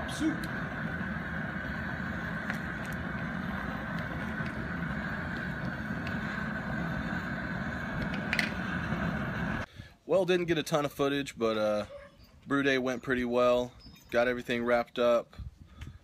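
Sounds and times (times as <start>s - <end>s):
gas burner rushing: 0.0s - 9.7s.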